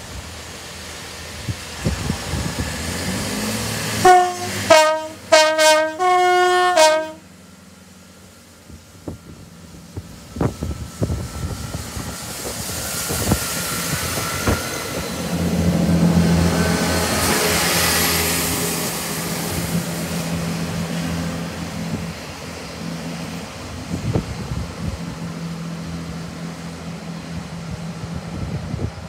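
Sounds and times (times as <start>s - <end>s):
diesel train engine droning: 0.0s - 29.0s
wheels clacking on rails: 9.0s - 29.0s.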